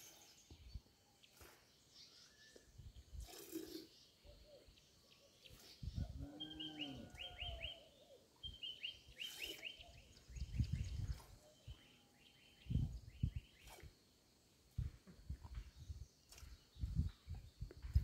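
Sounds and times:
bird singing whistled notes: 4.2s - 13.8s.

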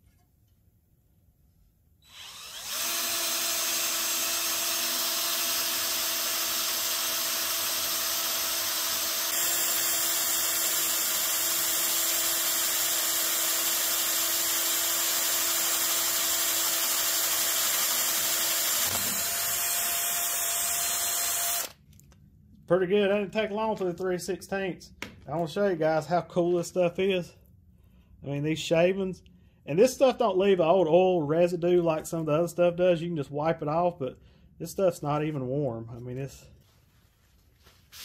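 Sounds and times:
cordless drill boring steel: 2.0s - 21.8s.

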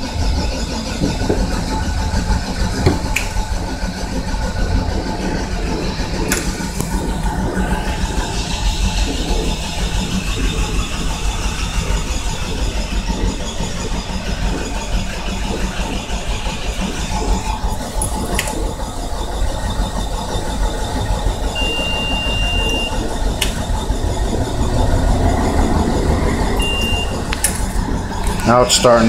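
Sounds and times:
truck starter cranking engine: 0.0s - 29.0s
steady high beep: 21.6s - 23.0s, 26.6s - 27.3s.

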